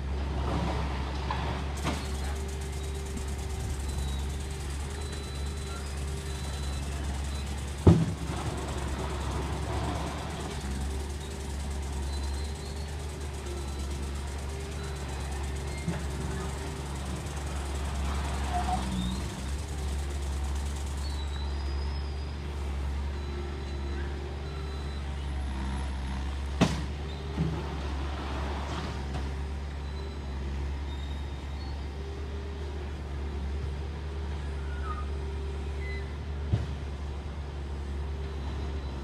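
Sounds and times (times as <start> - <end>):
construction machinery engine rumble: 0.0 - 39.0.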